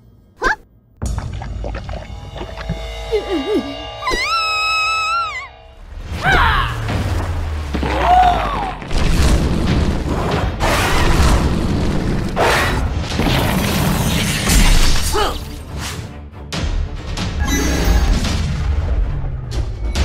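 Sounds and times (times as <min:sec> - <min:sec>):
background music: 0:00.0 - 0:11.6, 0:14.1 - 0:20.0
short wavering cries: 0:03.1 - 0:05.8.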